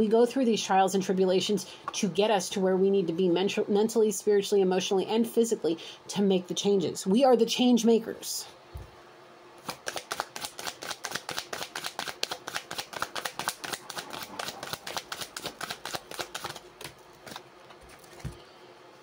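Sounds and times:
cards being shuffled: 9.6s - 18.4s.

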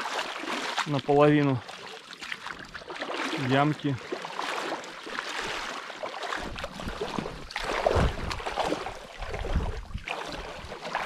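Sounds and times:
water splashing and sloshing: 0.0s - 11.0s
wind rumble on microphone: 6.4s - 10.9s.

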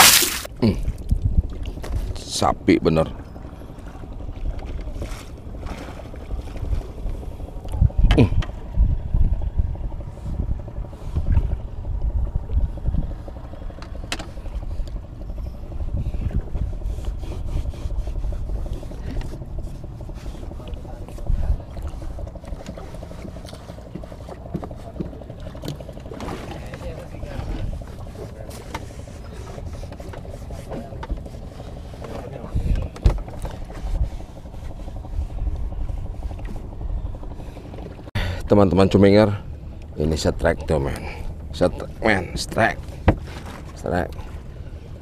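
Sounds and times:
low rumble of wind: 0.0s - 45.0s
water around a boat: 0.0s - 45.0s
knocks on a wooden boat: 32.9s - 33.3s, 43.0s - 43.3s.

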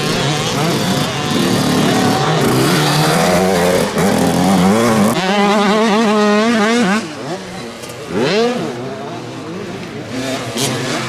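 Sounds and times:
close motorbike revving: 0.0s - 11.0s
motocross bike engines: 0.0s - 11.0s.

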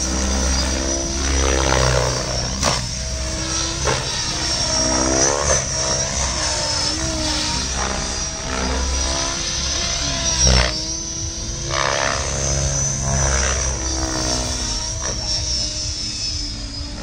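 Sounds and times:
toy helicopter motor whine: 0.0s - 17.0s.

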